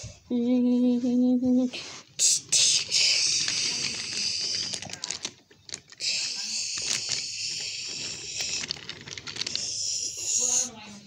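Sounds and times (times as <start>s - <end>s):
toy train clicking on wooden track: 2.2s - 10.7s.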